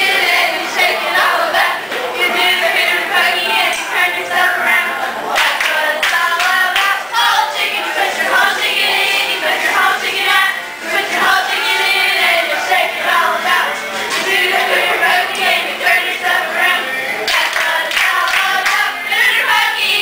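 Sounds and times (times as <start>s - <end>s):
women singing in chorus: 0.0s - 20.0s
hands clapping: 5.4s - 7.0s, 17.2s - 18.9s.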